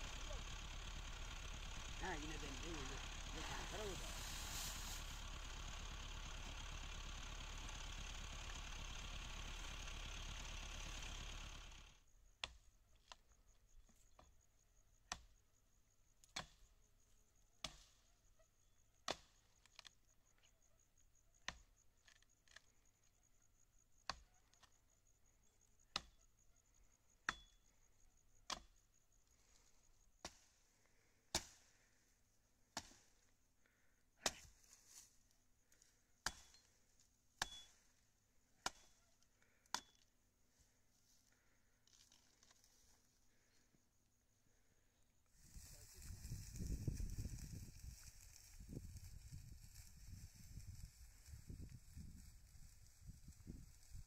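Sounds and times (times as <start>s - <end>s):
engine running: 0.0s - 12.0s, 45.4s - 54.0s.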